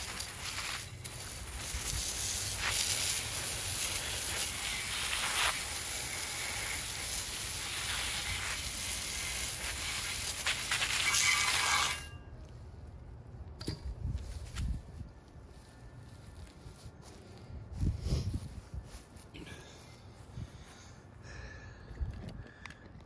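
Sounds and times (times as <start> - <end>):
hose nozzle spraying water: 0.0 - 12.1.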